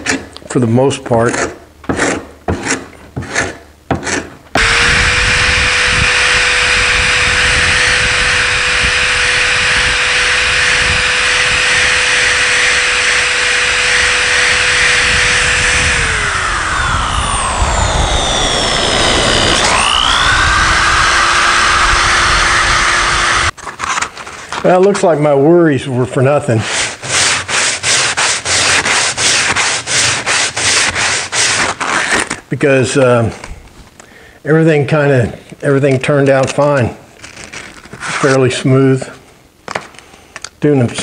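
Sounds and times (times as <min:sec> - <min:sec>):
paint scraper scraping wood: 0:00.0 - 0:16.4, 0:26.5 - 0:32.4, 0:37.2 - 0:38.4
electric drill with wire wheel: 0:04.6 - 0:23.6.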